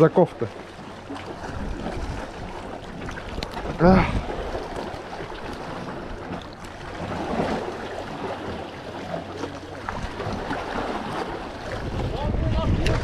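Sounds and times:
sea washing against rocks: 0.8 - 13.0
wind on microphone: 1.4 - 5.6, 9.9 - 13.0.

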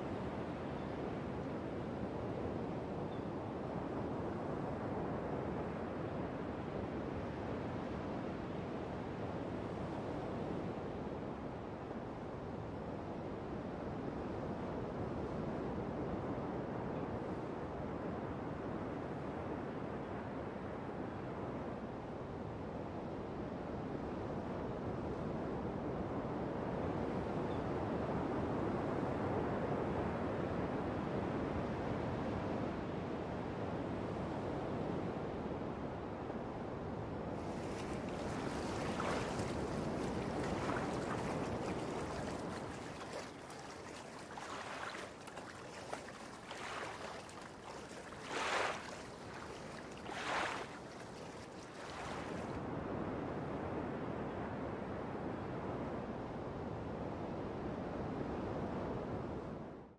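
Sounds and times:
small waves lapping at shore: 0.0 - 3.2, 37.4 - 52.6
wind and surf rushing: 37.4 - 52.6.

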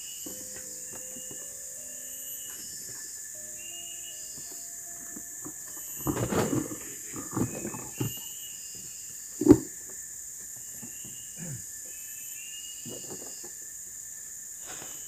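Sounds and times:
high insect buzz: 0.0 - 15.0
short insect chirps: 0.0 - 15.0
rustling and bucket knocks: 5.0 - 8.3.

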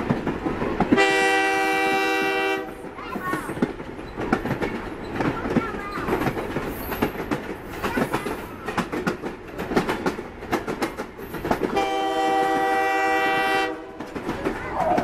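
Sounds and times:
train wheels clicking over rail joints: 0.0 - 15.0
train horn chord: 1.0 - 2.8, 11.8 - 14.0.

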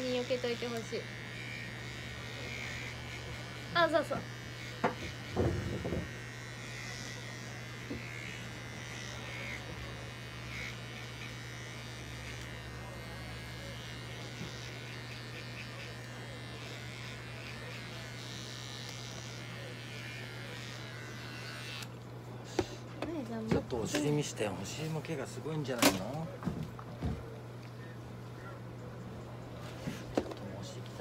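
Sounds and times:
electric pet trimmer buzzing: 0.0 - 24.4.

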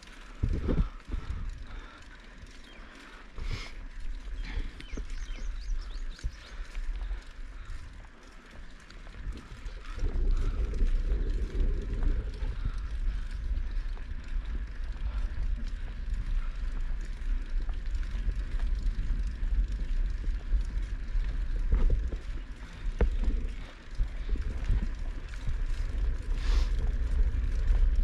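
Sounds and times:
bike rattling: 0.0 - 28.0
wind on microphone: 0.3 - 1.9, 9.0 - 28.0.

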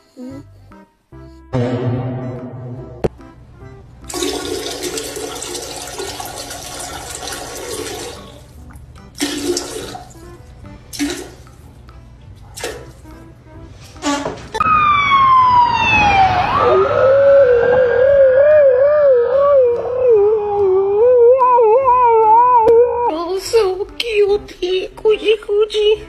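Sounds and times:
toilet flushing: 4.1 - 8.5, 9.2 - 10.2, 10.9 - 11.5.

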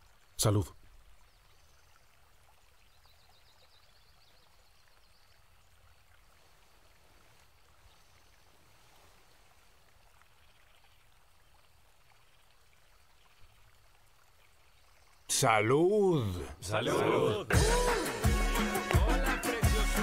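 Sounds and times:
faint background hiss: 0.0 - 17.5.

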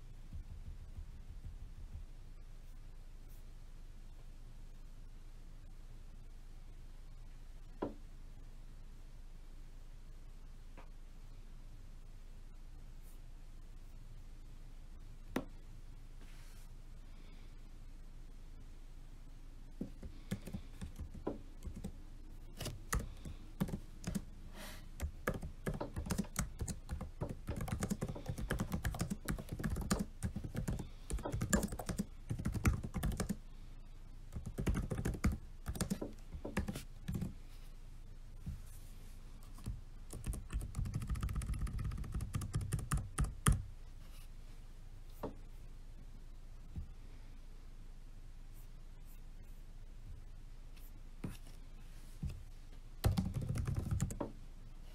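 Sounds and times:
laptop keyboard typing: 19.9 - 22.0, 22.6 - 24.3, 25.0 - 33.4, 34.3 - 37.4, 39.5 - 43.7, 53.0 - 54.3.

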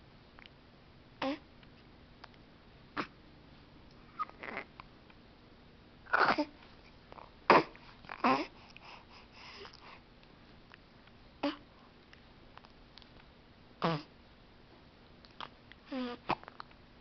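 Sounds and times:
baby squeaking and grunting: 4.1 - 4.7, 6.1 - 6.5.

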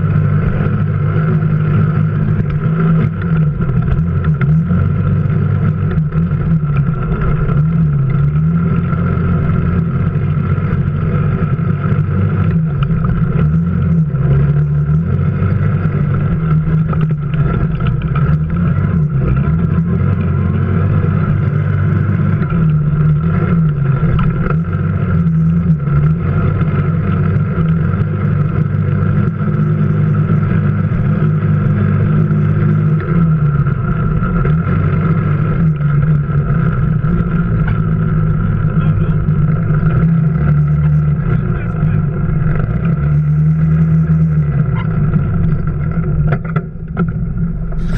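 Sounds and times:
off-road vehicle engine: 0.0 - 47.9.

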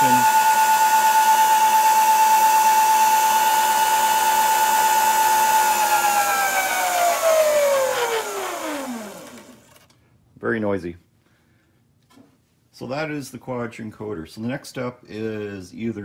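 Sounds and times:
electric motor whining: 0.0 - 9.8.

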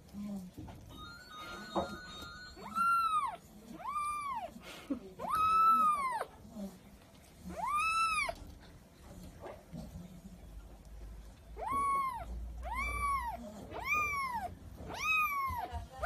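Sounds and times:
kitten meowing: 2.2 - 4.5, 5.2 - 6.3, 7.5 - 8.4, 11.6 - 15.8.

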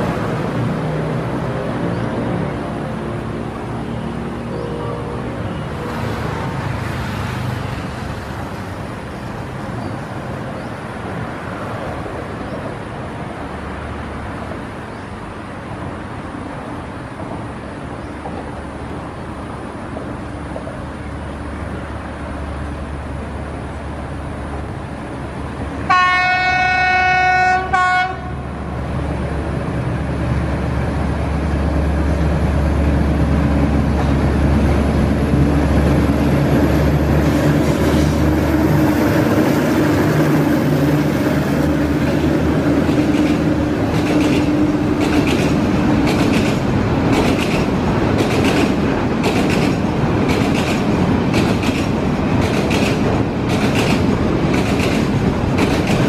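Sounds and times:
locomotive engine rumbling: 0.0 - 56.0
train horn blast: 4.5 - 6.0, 25.9 - 28.5.

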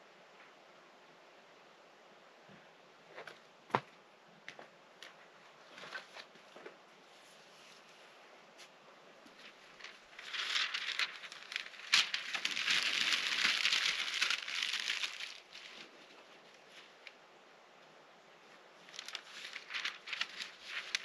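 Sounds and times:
packaging crinkling: 9.8 - 16.0, 18.9 - 21.0.

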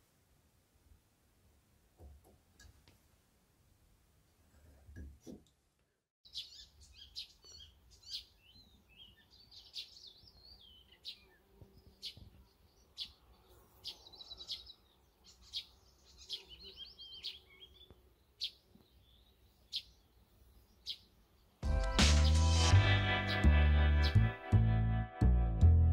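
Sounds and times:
small songbirds chirping: 6.2 - 22.4.

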